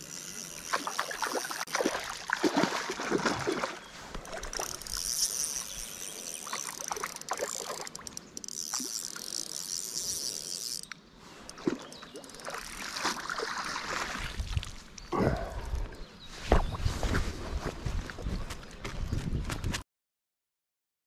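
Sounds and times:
water splashing and sloshing: 0:00.4 - 0:05.6, 0:06.4 - 0:10.2, 0:10.9 - 0:15.0.

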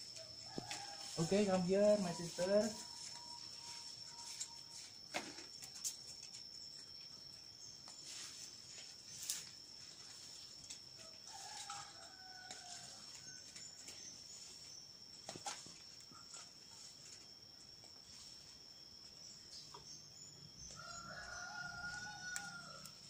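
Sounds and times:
faint chicken calling: 0:20.7 - 0:23.0.

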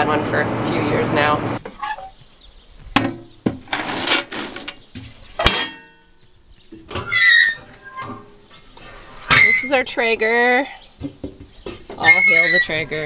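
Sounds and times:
metal lids knocking and clanking: 0:03.0 - 0:06.1.

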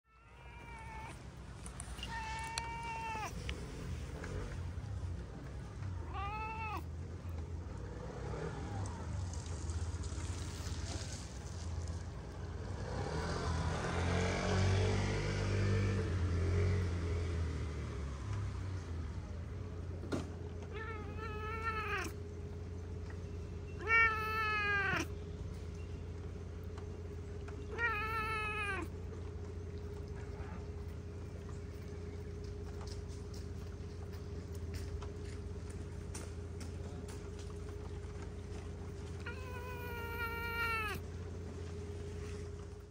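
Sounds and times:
cat meowing: 0:00.1 - 0:03.7, 0:06.0 - 0:06.9, 0:20.7 - 0:22.2, 0:23.8 - 0:25.2, 0:27.7 - 0:29.0, 0:39.2 - 0:41.0
low steady rumble: 0:17.9 - 0:42.9.

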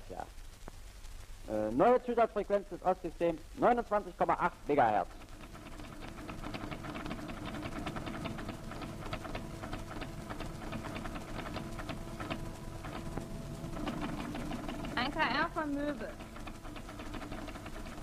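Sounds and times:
teleprinter motor hum: 0:03.6 - 0:18.0
teleprinter clicking: 0:05.0 - 0:18.0.

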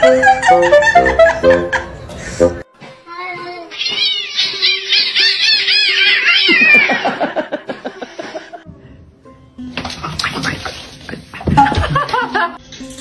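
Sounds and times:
cats yowling and growling: 0:03.7 - 0:07.4.

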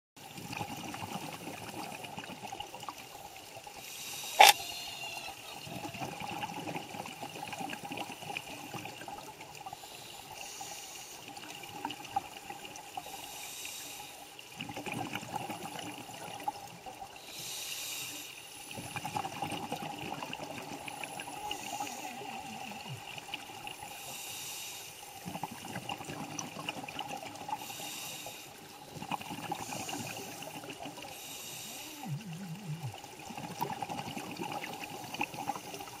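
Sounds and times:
regulator inhale hiss: 0:03.8 - 0:04.9, 0:09.8 - 0:11.5, 0:12.9 - 0:14.4, 0:17.2 - 0:18.9, 0:20.9 - 0:23.0, 0:23.8 - 0:25.2, 0:27.5 - 0:28.9, 0:29.5 - 0:32.9
exhale bubbling: 0:18.7 - 0:24.4, 0:25.1 - 0:36.0.

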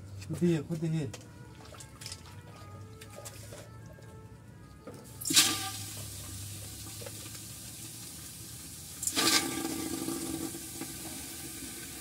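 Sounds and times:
meat sizzling in hot oil: 0:05.2 - 0:12.0.

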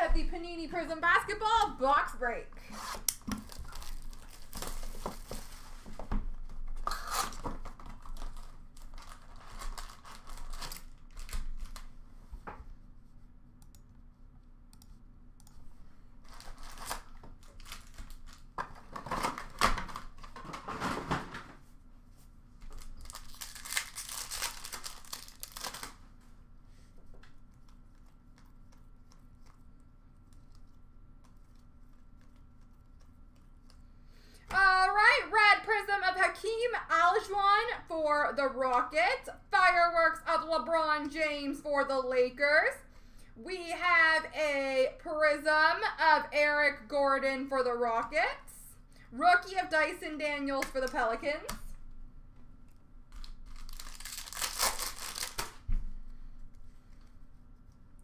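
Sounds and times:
card packs ripping open: 0:02.8 - 0:05.0, 0:06.9 - 0:11.9, 0:16.3 - 0:20.3, 0:22.7 - 0:26.0, 0:53.2 - 0:55.6
plastic wrap tearing and crumpling: 0:02.8 - 0:05.5, 0:06.9 - 0:11.9, 0:16.2 - 0:20.8, 0:22.6 - 0:26.2, 0:53.1 - 0:55.7
handling of cards: 0:22.2 - 0:33.9, 0:52.6 - 0:55.8.

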